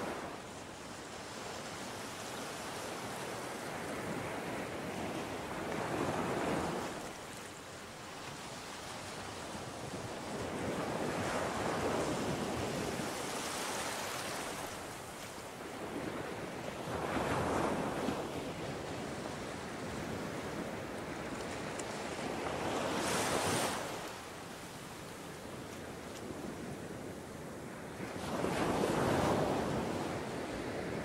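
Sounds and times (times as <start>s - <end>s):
waves washing on sand: 0.0s - 31.0s
wind on microphone: 8.5s - 31.0s.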